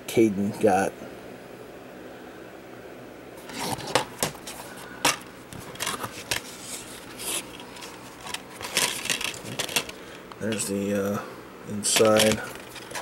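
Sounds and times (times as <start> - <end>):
plastic case clicking and rattling: 5.0 - 6.5, 7.4 - 10.7, 11.9 - 13.0.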